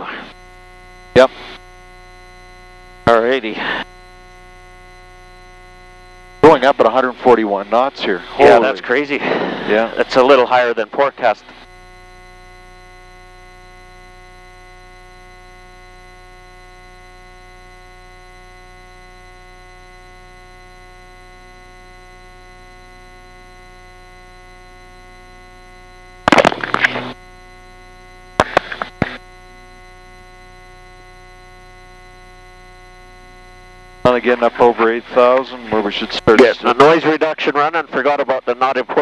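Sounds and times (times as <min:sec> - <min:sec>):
electrical hum with fixed tones: 0:00.0 - 0:39.0
short loud bursts: 0:26.3 - 0:27.2.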